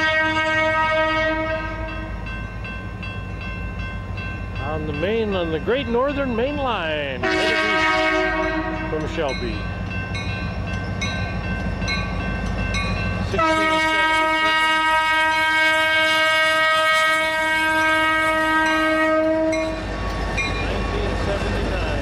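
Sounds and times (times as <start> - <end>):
locomotive air horn blast: 0.0 - 2.0, 7.2 - 8.9, 13.4 - 19.8
crossing bell dinging: 0.0 - 22.0
locomotive rumble: 0.0 - 22.0.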